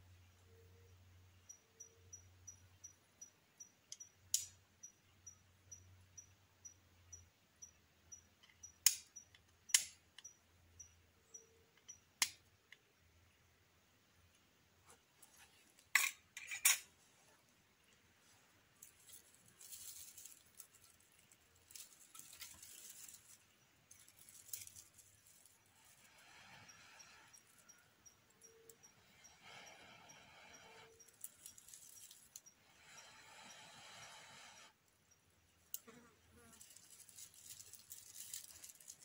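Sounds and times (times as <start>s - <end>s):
faint insect ticking: 0.0s - 13.5s, 18.7s - 39.0s
flint and steel clicks: 3.9s - 4.6s, 8.4s - 10.4s, 11.8s - 12.8s
dry grass rustling: 18.2s - 26.0s, 31.0s - 32.4s, 36.5s - 39.0s.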